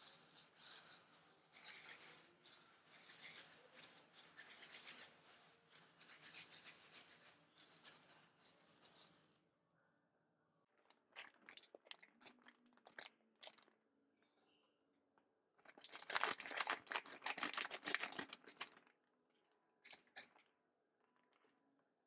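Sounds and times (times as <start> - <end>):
plastic gloves rubbing and crinkling: 0.0 - 9.4, 15.6 - 19.0.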